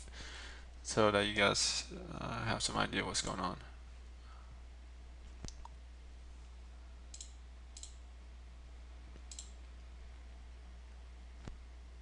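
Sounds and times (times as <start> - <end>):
steady low hum: 0.0 - 12.0
computer mouse clicks: 7.1 - 8.0, 9.2 - 9.6.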